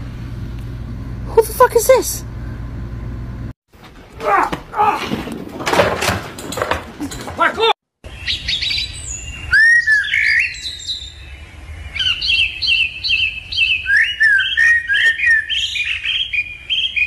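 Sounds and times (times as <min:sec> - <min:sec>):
lovebirds chirping and squawking: 0:08.1 - 0:17.0.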